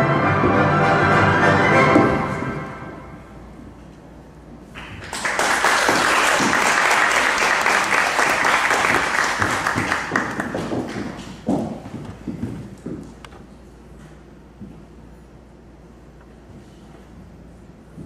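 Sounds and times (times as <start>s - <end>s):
audience applauding: 4.8s - 11.2s.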